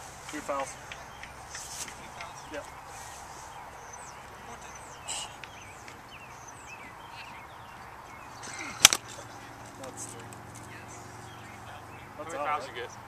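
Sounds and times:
outdoor background noise: 0:00.0 - 0:13.0
songbirds chirping: 0:00.0 - 0:13.0
soft rustle: 0:01.5 - 0:03.7.

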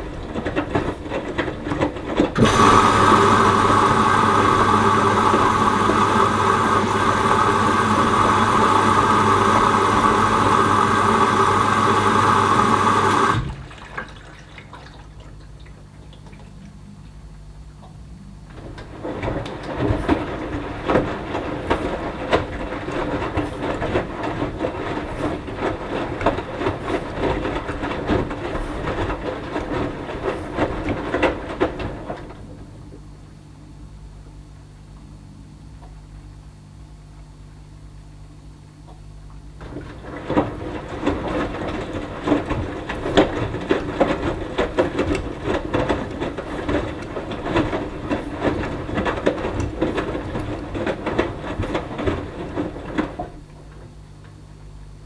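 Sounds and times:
washing machine drum sloshing: 0:00.0 - 0:33.0, 0:38.9 - 0:54.5
water rushing through inlet valve: 0:02.2 - 0:16.8.

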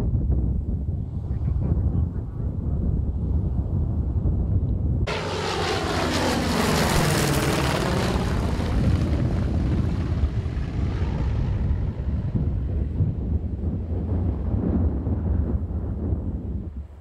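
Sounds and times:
propeller plane engine passing: 0:05.0 - 0:15.0.

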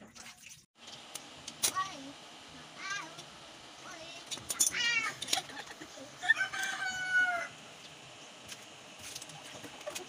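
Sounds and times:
rooster crowing: 0:06.2 - 0:07.6.

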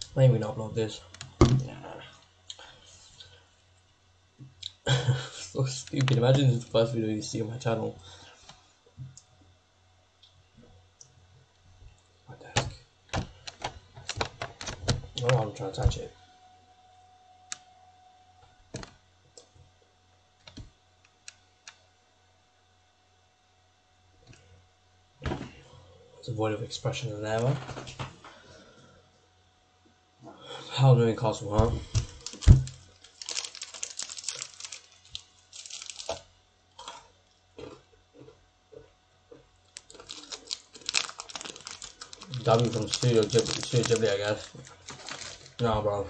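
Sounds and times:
faint electrical hum: 0:00.0 - 0:46.0
crinkly wrapper crackling: 0:31.9 - 0:36.3, 0:39.6 - 0:45.7.

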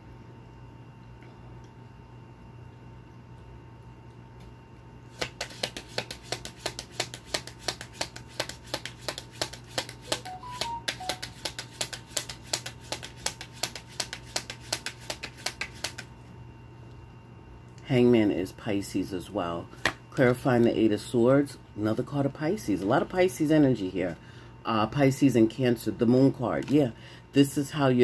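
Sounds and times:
cards being shuffled: 0:05.1 - 0:16.1.

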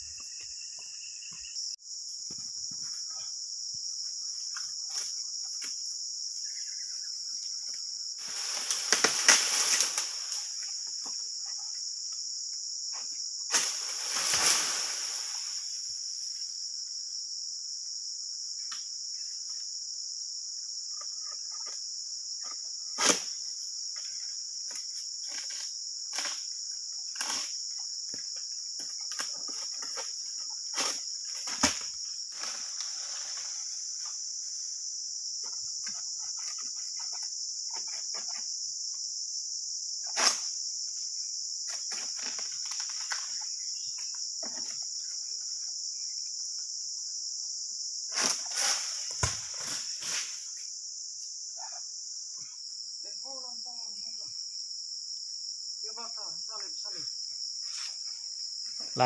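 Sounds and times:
insects droning: 0:00.0 - 0:59.0
sickle knocking palm fronds: 0:08.3 - 0:10.5, 0:30.7 - 0:32.9, 0:48.1 - 0:50.4.

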